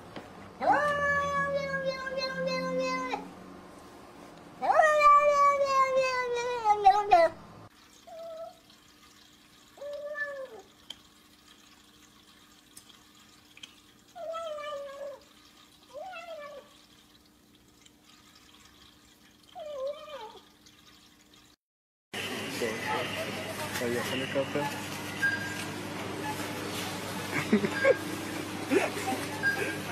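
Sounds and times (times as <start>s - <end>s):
cat meowing: 0.6s - 3.2s, 4.6s - 7.2s.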